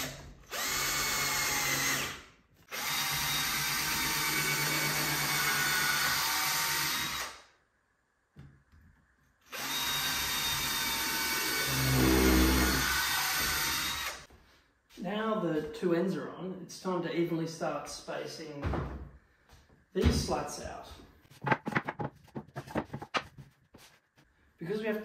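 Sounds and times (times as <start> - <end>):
cordless drill driving screws: 0.0 - 7.4, 9.5 - 14.3.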